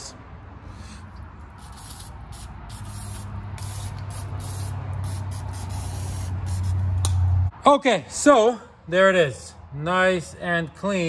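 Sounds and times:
aerosol spray hissing: 1.6s - 7.0s.

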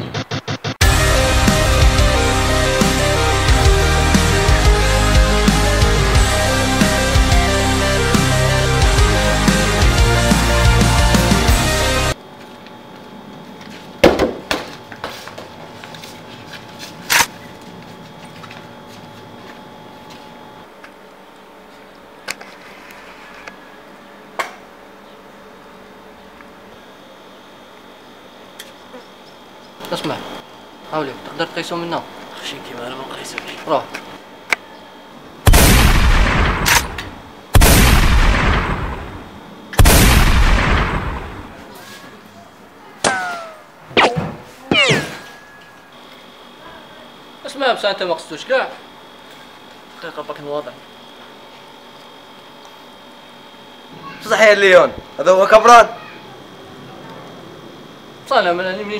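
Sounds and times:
shotgun shots with echo: 35.5s - 41.6s, 44.0s - 45.4s.

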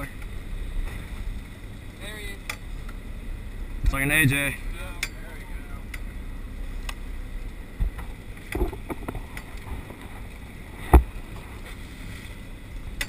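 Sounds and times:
wind rumbling on microphone: 5.4s - 13.0s.

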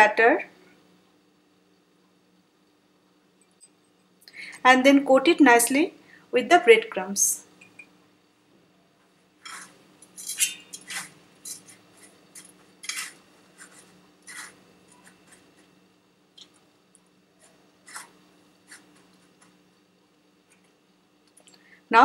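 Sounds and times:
faint steady hum: 0.0s - 22.0s
breadcrumbs scraping on steel plate: 9.4s - 15.8s, 17.4s - 19.6s.

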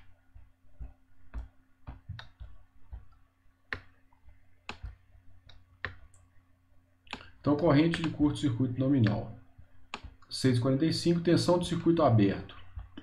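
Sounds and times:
computer mouse clicks: 4.6s - 6.3s, 7.1s - 8.3s, 9.9s - 10.3s.

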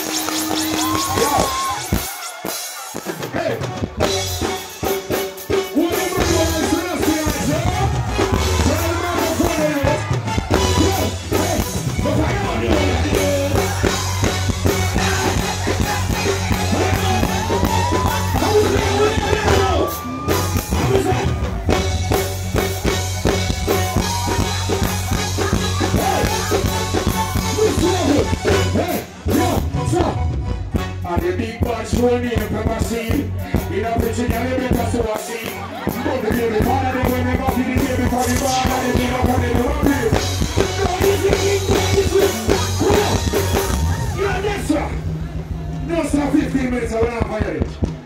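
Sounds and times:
live reggae band: 0.0s - 48.0s
man singing into a microphone: 5.6s - 21.6s, 23.9s - 30.2s, 31.0s - 44.7s.

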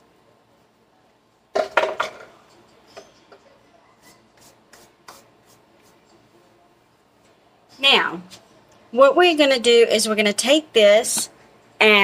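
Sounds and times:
rattling knocks of kitchen things: 1.5s - 2.4s.

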